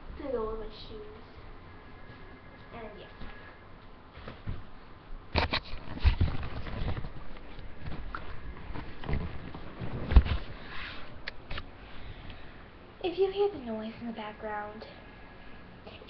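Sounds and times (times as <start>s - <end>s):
fabric rustling on microphone: 5.4s - 11.6s.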